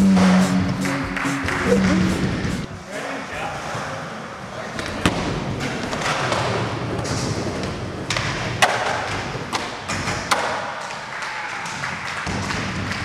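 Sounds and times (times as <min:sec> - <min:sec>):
skateboard wheels rolling on concrete: 0:01.1 - 0:13.0.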